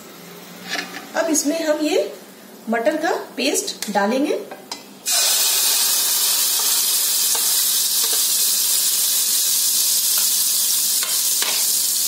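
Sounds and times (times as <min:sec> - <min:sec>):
utensils scraping a pan: 0:00.6 - 0:01.1
paste sizzling in hot fat: 0:05.0 - 0:12.0.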